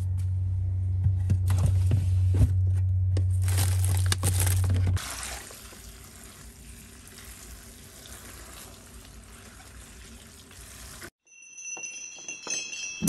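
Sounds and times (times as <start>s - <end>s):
water splashing into a metal pot: 5.0s - 11.1s.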